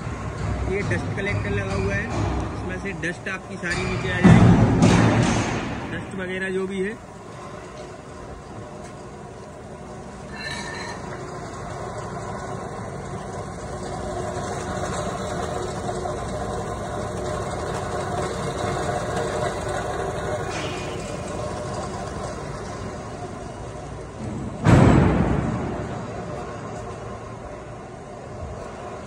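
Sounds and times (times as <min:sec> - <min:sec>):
low machinery rumble: 0:00.0 - 0:29.0
sudden loud bang: 0:03.7 - 0:06.2, 0:24.3 - 0:26.4.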